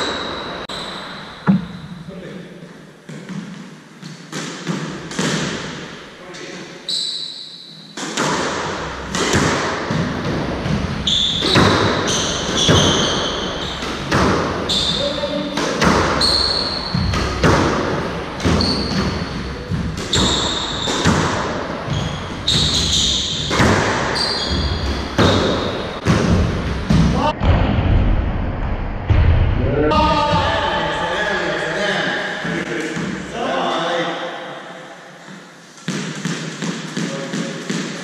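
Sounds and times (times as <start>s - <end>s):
squash ball hitting rackets and walls: 0.0s - 2.0s, 3.0s - 6.0s, 7.8s - 27.2s, 32.7s - 33.3s, 35.2s - 38.0s
sneakers squeaking on wooden floor: 0.0s - 2.1s, 6.8s - 8.0s, 10.6s - 26.1s.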